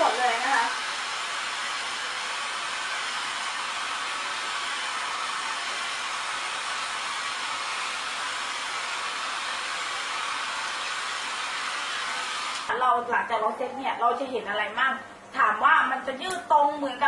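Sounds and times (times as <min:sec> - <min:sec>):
hair dryer blowing: 0:00.0 - 0:12.8.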